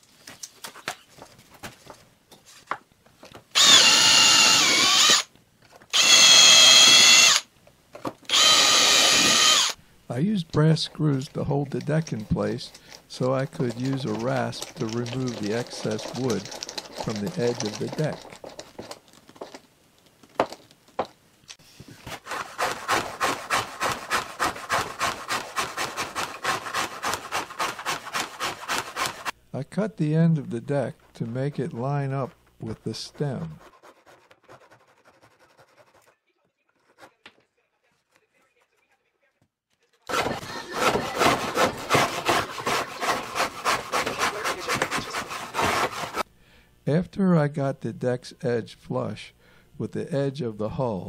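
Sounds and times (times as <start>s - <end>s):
rasp filing wood: 3.6s - 5.2s, 8.3s - 9.8s, 12.1s - 18.9s, 22.0s - 29.4s, 32.9s - 37.2s, 40.1s - 46.3s
cordless drill whining: 3.6s - 5.3s, 5.9s - 7.5s, 8.3s - 9.8s.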